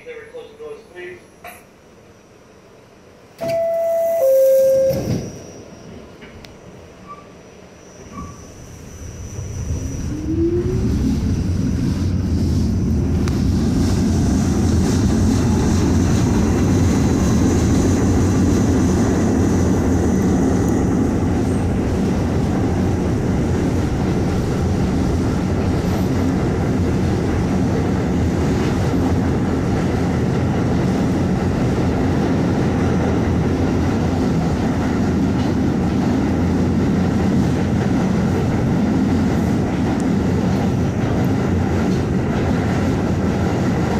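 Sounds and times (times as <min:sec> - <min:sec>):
subway motors whining: 0:00.0 - 0:43.9
wheels rumbling on rails: 0:08.1 - 0:43.9.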